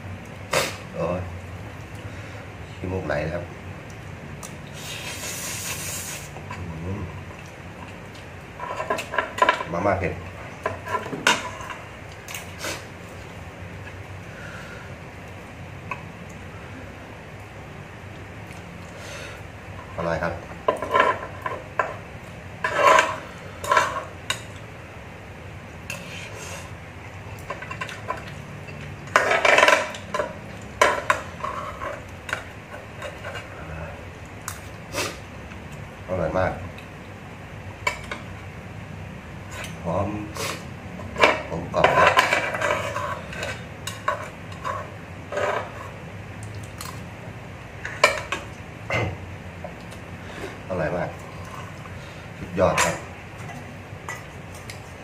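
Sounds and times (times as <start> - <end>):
metal spoon and chopsticks scraping pan: 22.6 - 24.1, 40.4 - 46.0.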